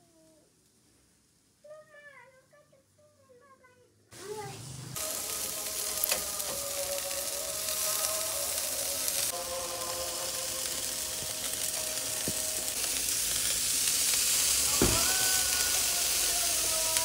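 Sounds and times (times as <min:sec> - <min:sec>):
burger patties sizzling on grill: 0:00.2 - 0:01.7, 0:04.2 - 0:17.0
thump: 0:14.8 - 0:15.1.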